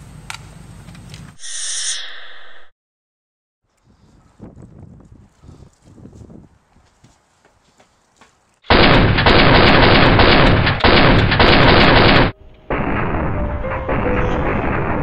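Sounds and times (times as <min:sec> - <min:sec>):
dense gunfire burst: 0:08.7 - 0:15.0.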